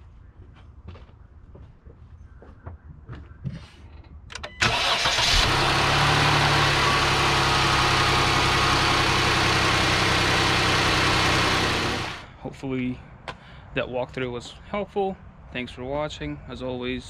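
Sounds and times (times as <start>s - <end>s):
car engine starter cranking: 4.3s - 12.2s
car engine idling: 4.6s - 12.3s.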